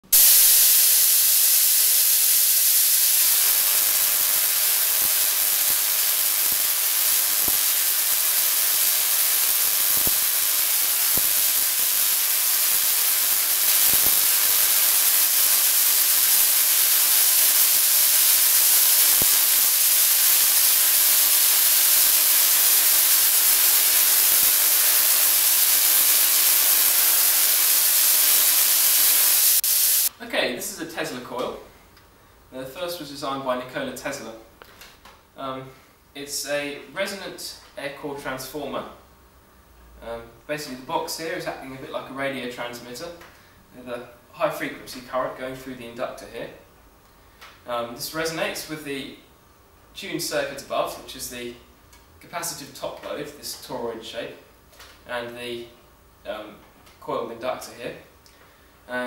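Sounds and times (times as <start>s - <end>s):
tesla coil hissing buzz: 0.0s - 30.1s
sharp electric snaps: 0.0s - 30.2s.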